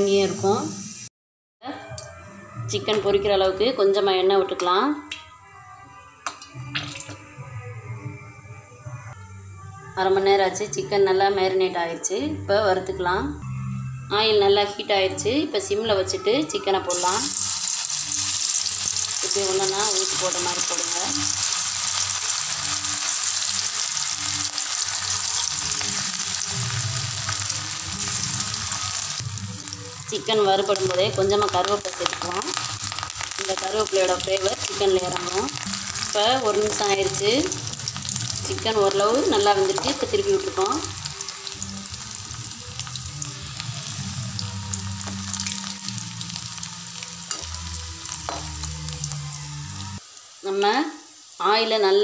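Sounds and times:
chicken sizzling in hot oil: 0:00.0 - 0:01.1, 0:16.9 - 0:52.0.

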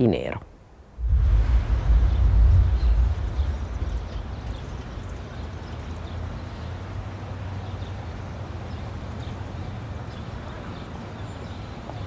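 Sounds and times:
low traffic rumble: 0:00.0 - 0:12.0.

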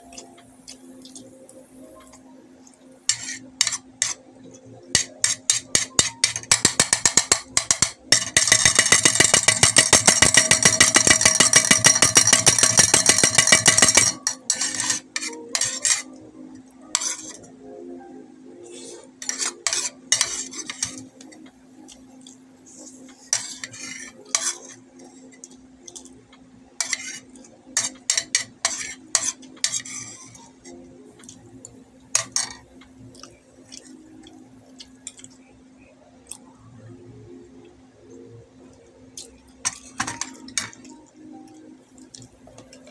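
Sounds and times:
spoon scraping a bowl: 0:03.1 - 0:04.2, 0:04.9 - 0:16.2, 0:16.8 - 0:17.5, 0:18.6 - 0:21.4, 0:22.7 - 0:26.2, 0:26.8 - 0:30.8, 0:32.2 - 0:32.6.

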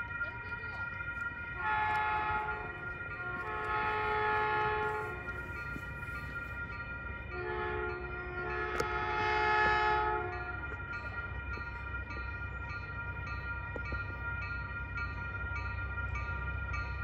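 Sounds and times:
train air horn blasts: 0:01.6 - 0:05.3, 0:07.4 - 0:10.6.

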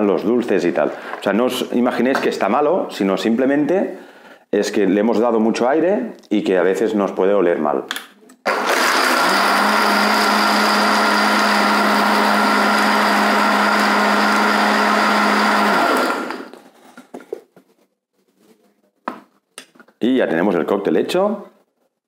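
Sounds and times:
blender running and spinning down: 0:08.5 - 0:16.6.

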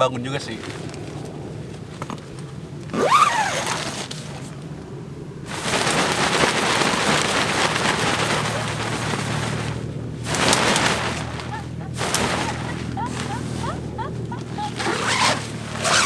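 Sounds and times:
tent door zipping: 0:02.9 - 0:04.5, 0:05.5 - 0:16.0
tent fabric rustling: 0:02.9 - 0:04.6, 0:05.4 - 0:16.0.

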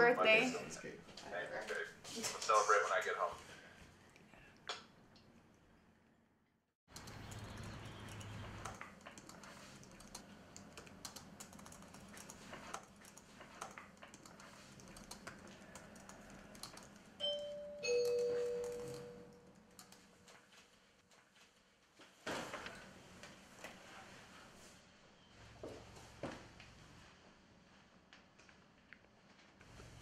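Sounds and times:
laptop keyboard typing: 0:06.9 - 0:20.1
two-note doorbell chime: 0:17.2 - 0:19.3.

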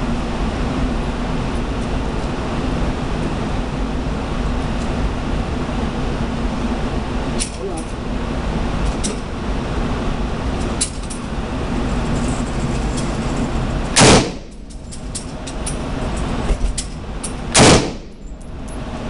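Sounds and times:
loud gunshot indoors: 0:14.0 - 0:14.5, 0:17.5 - 0:18.2.

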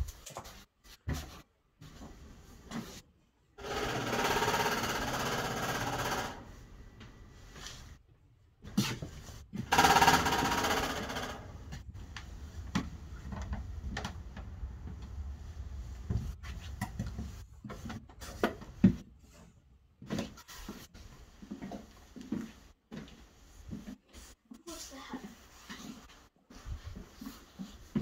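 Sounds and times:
fast rattling noise: 0:03.6 - 0:06.5, 0:09.6 - 0:11.8.

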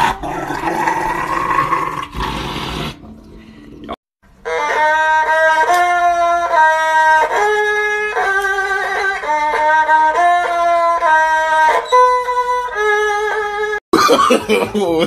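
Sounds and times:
slow melody of long held notes: 0:03.0 - 0:13.8.

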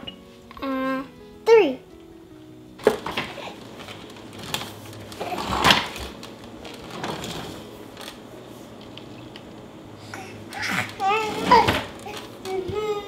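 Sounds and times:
hard plastic toys clattering: 0:02.8 - 0:08.2, 0:10.5 - 0:12.8.

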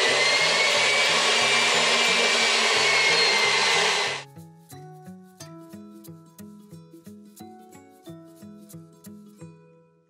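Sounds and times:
stand mixer motor whirring: 0:00.0 - 0:04.2.

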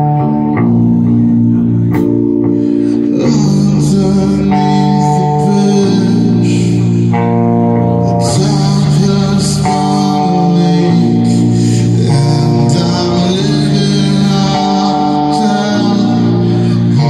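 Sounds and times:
heavy electric guitar and bass: 0:00.0 - 0:17.0.

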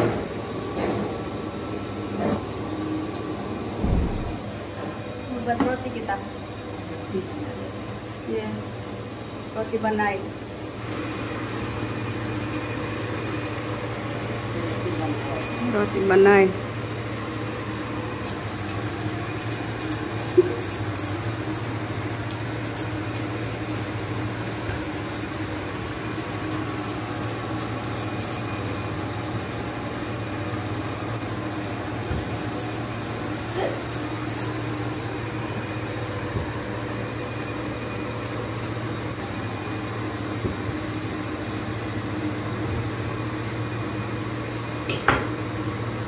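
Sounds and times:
low machine hum: 0:00.0 - 0:46.0.

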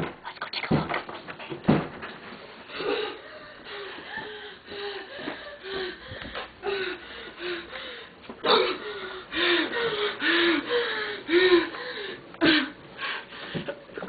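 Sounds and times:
loud noisy breaths: 0:02.7 - 0:13.7.

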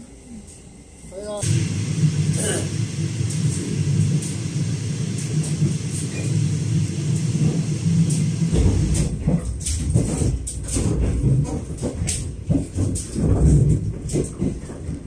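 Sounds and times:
train low rumble: 0:00.0 - 0:15.0
wheels clattering on track: 0:01.5 - 0:15.0.

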